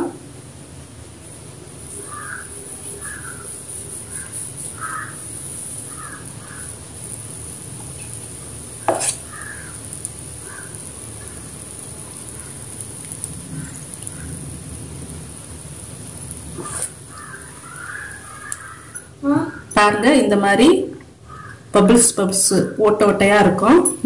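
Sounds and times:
faint high hiss: 0.0s - 22.8s
short bird calls: 2.0s - 5.3s, 9.2s - 9.8s, 16.6s - 19.7s.

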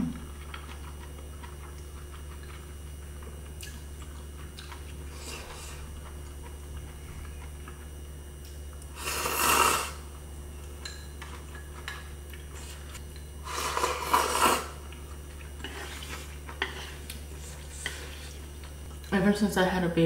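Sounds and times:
noodle slurping: 8.9s - 10.0s, 12.6s - 14.8s.

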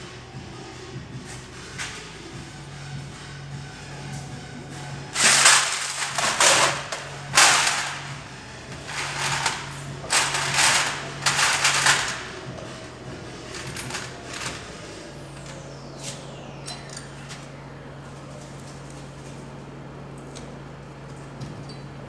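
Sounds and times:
rattling and clinking metal parts: 5.1s - 15.6s.

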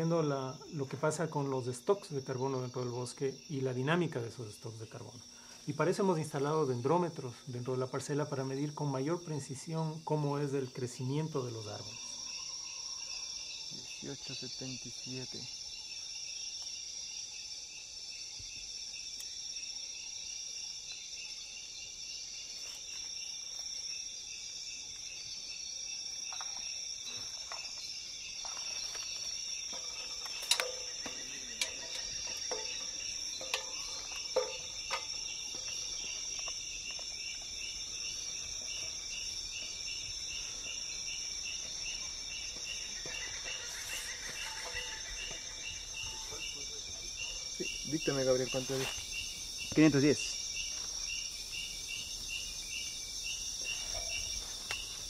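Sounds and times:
insects trilling and buzzing: 0.0s - 55.0s
sharp knocks: 29.8s - 35.7s.

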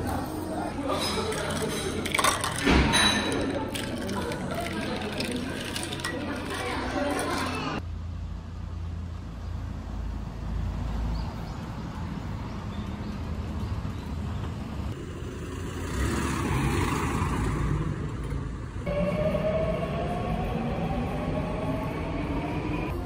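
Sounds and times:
street traffic rumble: 0.0s - 23.0s
subway train motors whining: 18.8s - 23.0s.

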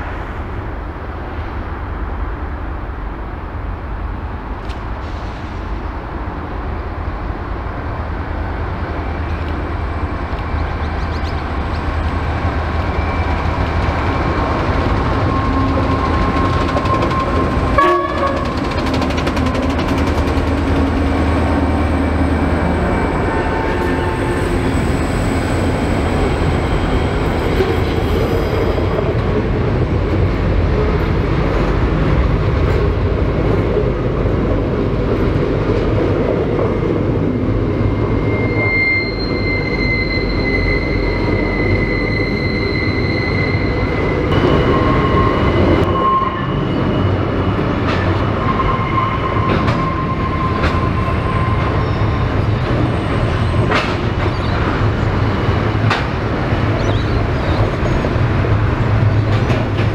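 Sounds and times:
freight wagons rumbling: 9.7s - 38.1s
high-pitched wheel squeal: 12.9s - 19.8s, 21.2s - 28.9s, 37.6s - 54.6s.

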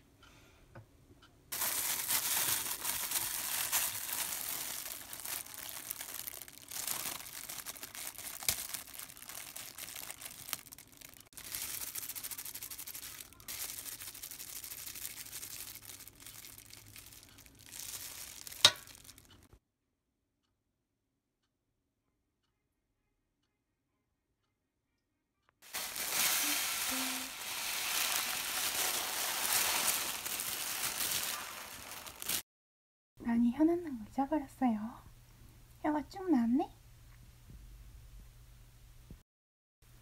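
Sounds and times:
cabbage leaves rustling: 1.5s - 19.3s, 25.7s - 32.4s
plastic gloves crinkling: 1.5s - 19.5s, 25.6s - 32.4s.

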